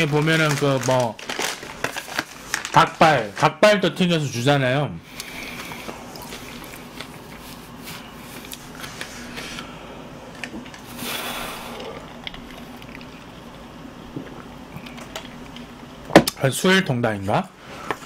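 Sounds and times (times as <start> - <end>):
chewing fried chicken: 5.6 - 7.7, 11.7 - 15.6.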